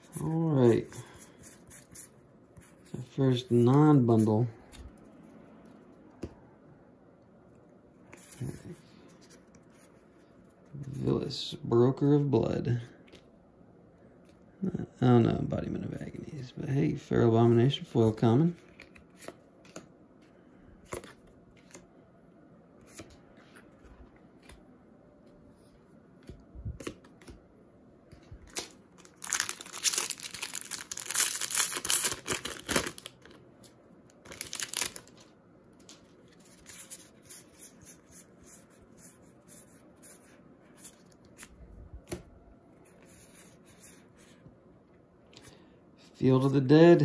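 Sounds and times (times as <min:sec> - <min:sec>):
foil wrapper tearing and crinkling: 0:28.6 - 0:33.2, 0:34.3 - 0:35.2.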